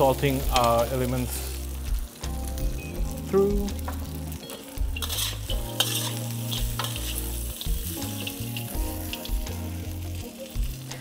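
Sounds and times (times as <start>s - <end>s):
oil sizzling: 0.0s - 11.0s
metal spatula scraping wok: 4.5s - 9.2s.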